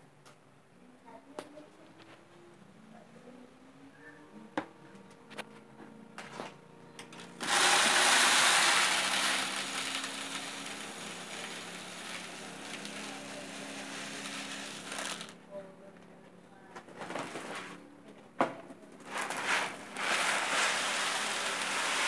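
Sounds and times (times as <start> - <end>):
rice grains pouring: 7.2 - 15.3, 19.1 - 22.0.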